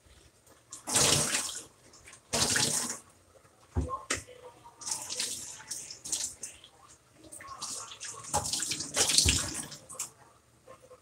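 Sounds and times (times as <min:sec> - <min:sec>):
faucet water splashing: 0:00.7 - 0:01.7, 0:07.3 - 0:10.1.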